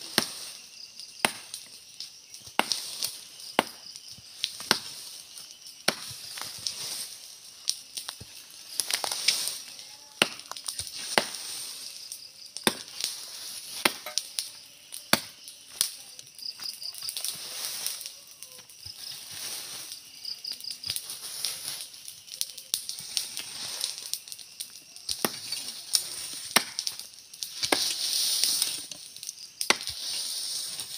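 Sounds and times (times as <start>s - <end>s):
steady high hiss: 0.0s - 30.9s
blade chopping wood: 1.2s - 1.5s, 12.6s - 12.9s, 13.8s - 14.2s, 26.6s - 26.9s.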